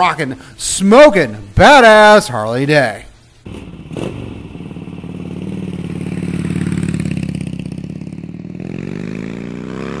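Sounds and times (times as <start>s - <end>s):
motorcycle engine revving: 3.4s - 10.0s.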